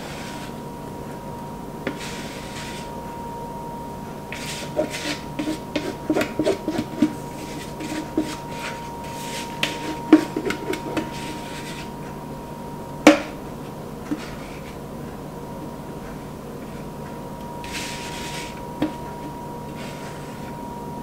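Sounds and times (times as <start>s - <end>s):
spatula scraping mixing bowl: 0.0s - 0.6s, 1.8s - 3.2s, 4.2s - 12.1s, 14.0s - 14.8s, 17.5s - 20.7s.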